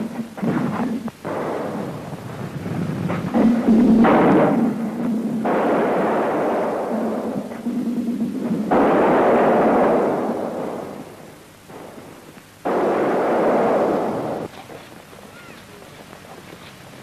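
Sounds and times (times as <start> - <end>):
explosions: 0.1 - 14.5.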